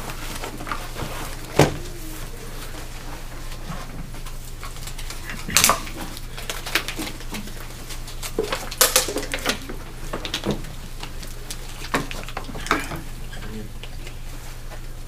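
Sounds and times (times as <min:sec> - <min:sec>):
small objects clicking and clattering: 0:04.6 - 0:12.8.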